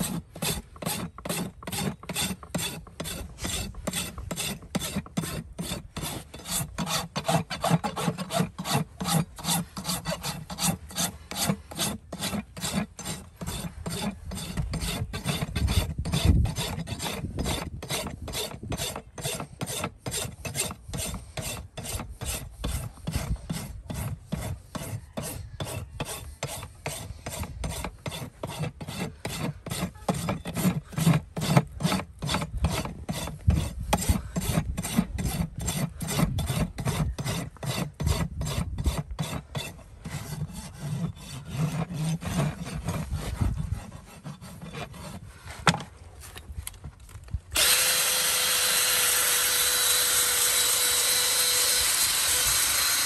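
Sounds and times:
rasp filing hoof: 0:00.0 - 0:53.0
cordless power tool running: 0:47.6 - 0:53.0.

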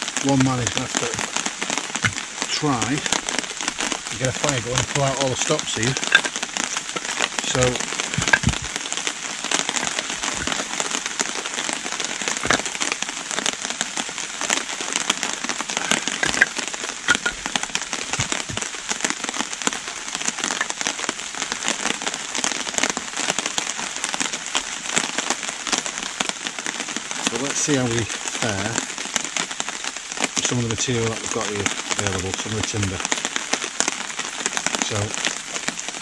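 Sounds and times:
heavy rain in woodland: 0:00.0 - 0:36.0
sticks set down on ground: 0:08.2 - 0:08.7, 0:15.8 - 0:18.6.

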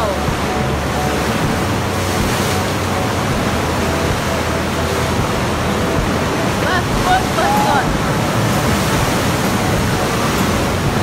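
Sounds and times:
sea waves surging against rocks: 0:00.0 - 0:11.0.

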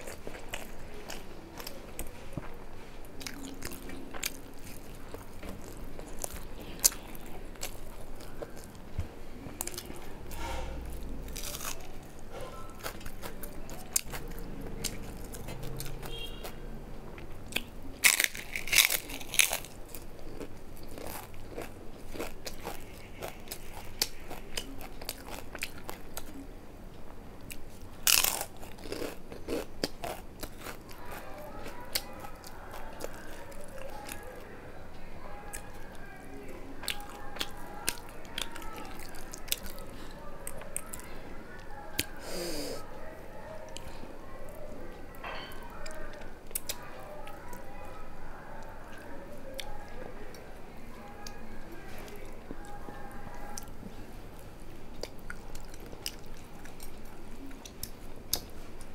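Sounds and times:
person chewing food: 0:00.0 - 0:26.4, 0:27.4 - 0:34.4, 0:35.4 - 0:42.9, 0:45.5 - 0:48.0, 0:51.2 - 0:58.9
crunchy bites: 0:09.5 - 0:12.1, 0:17.5 - 0:26.3, 0:28.0 - 0:31.2.

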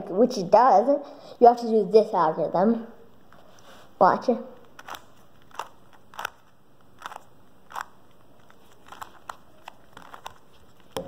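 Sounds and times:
puzzle cube turning clicks: 0:04.6 - 0:11.0.

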